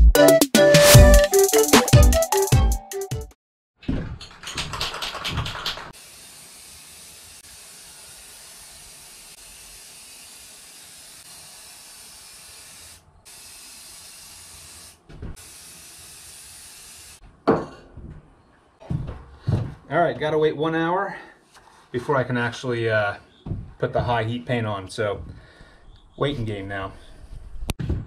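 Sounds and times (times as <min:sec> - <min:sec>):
rhythmic clatter: 0:04.2 - 0:06.0
spray can hissing: 0:05.0 - 0:17.2.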